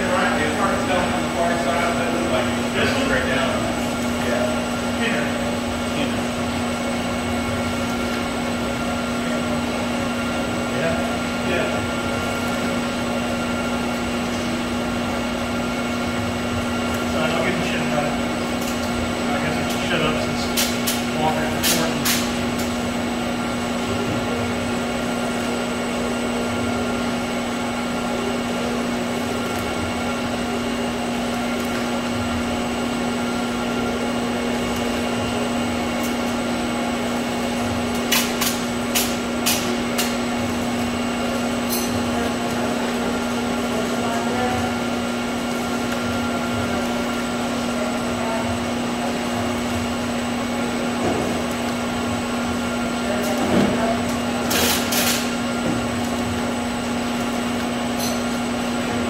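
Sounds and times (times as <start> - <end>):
machine motor hum: 0.0 - 59.0.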